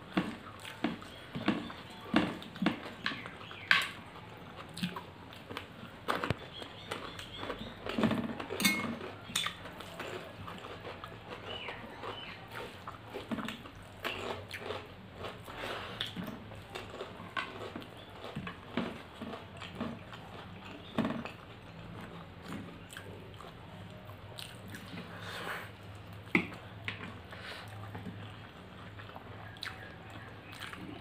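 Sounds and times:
wet chewing and lip smacking: 9.1s - 31.0s.

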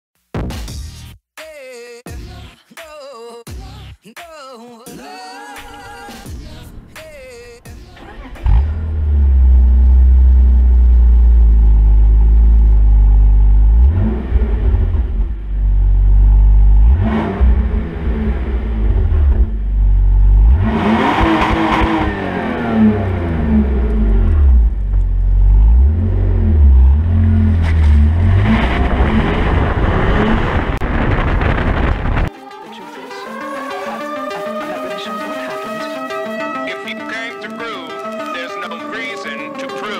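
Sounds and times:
car engine idling and revving: 6.2s - 32.3s.

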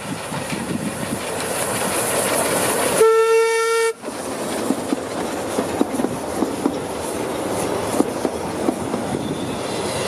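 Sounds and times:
steam train wheels clicking on rails: 0.0s - 10.0s
steam whistle blast: 3.0s - 4.0s.

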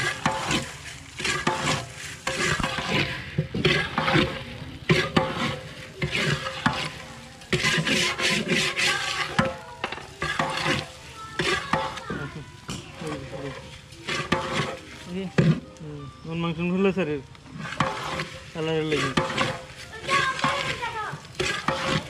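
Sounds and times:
metal spatula scraping rice in pot: 0.0s - 15.8s, 17.5s - 22.0s.

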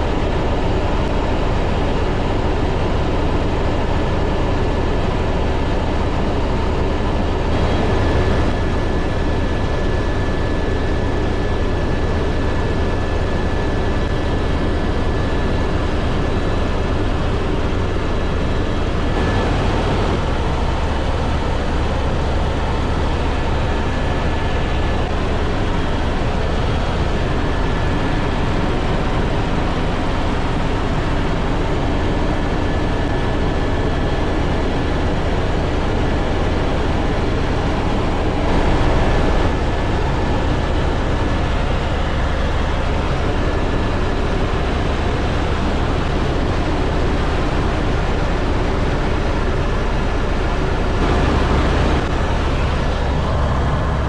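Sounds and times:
helicopter rotor and engine rumble: 0.0s - 54.0s
thin steady whine: 0.0s - 54.0s.

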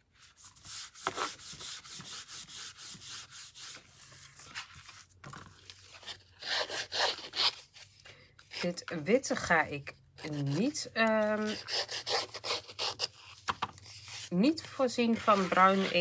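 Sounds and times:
paper being rubbed by hand: 0.2s - 5.0s, 11.3s - 16.0s
scraping along paper edge: 0.4s - 4.5s, 6.0s - 7.7s, 10.2s - 14.3s, 15.0s - 16.0s.

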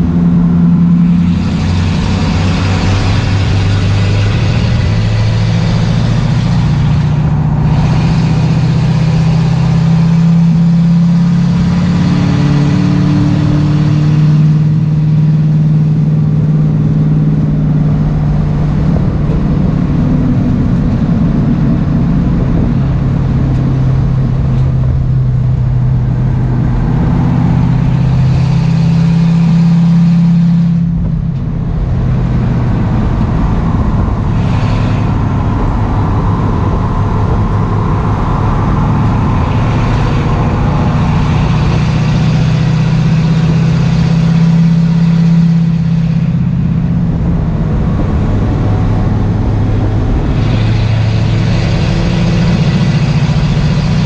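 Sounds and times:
race car engine revving: 0.0s - 54.0s
road and wind noise: 0.0s - 54.0s.

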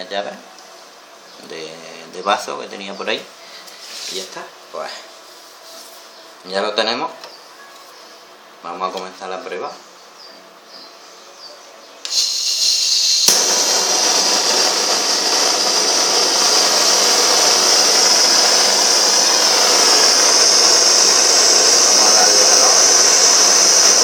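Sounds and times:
gas torch hissing: 12.0s - 24.0s
torch igniting pop: 12.1s - 24.0s.

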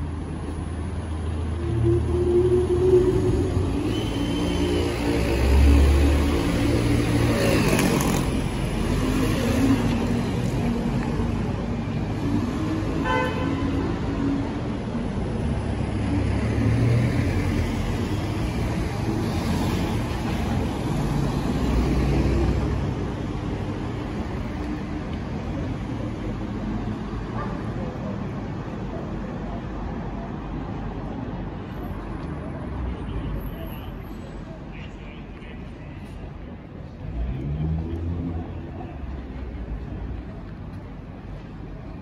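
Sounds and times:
bus passing close by: 0.0s - 27.4s
cars and buses running: 0.0s - 42.0s.

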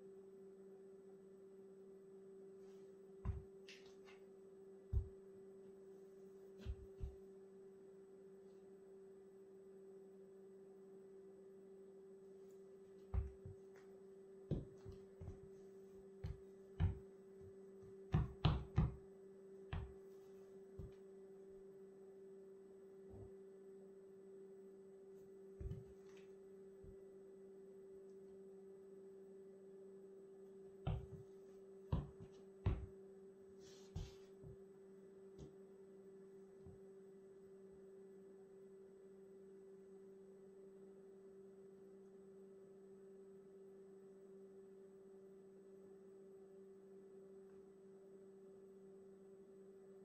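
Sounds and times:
steady low hum: 0.0s - 50.0s
sole scuffing: 3.2s - 4.3s, 4.9s - 5.2s, 6.5s - 7.2s, 13.1s - 13.9s, 14.5s - 19.0s, 25.6s - 26.3s, 30.9s - 33.0s, 33.6s - 34.6s
footsteps on wooden floor: 3.3s - 4.2s, 5.0s - 5.2s, 6.6s - 7.2s, 13.2s - 13.6s, 14.5s - 15.5s, 16.2s - 17.1s, 25.6s - 26.0s, 30.9s - 31.3s, 31.9s - 32.9s, 33.9s - 34.6s.

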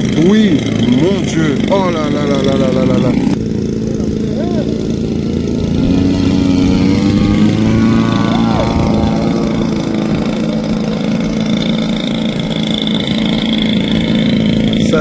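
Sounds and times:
model airplane engine running: 0.0s - 15.0s.

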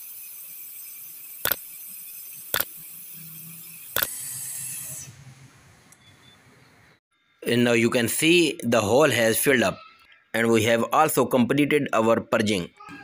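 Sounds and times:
sharp clicks: 1.4s - 1.6s, 2.5s - 2.8s.

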